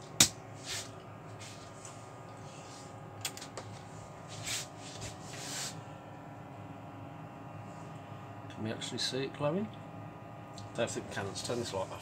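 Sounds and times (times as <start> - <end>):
brushing handling noises: 0.6 - 3.0, 3.6 - 5.8.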